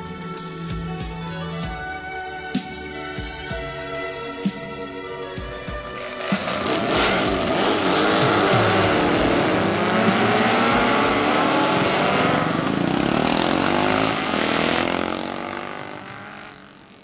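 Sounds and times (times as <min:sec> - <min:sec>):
racing engines revving: 0:05.8 - 0:17.0.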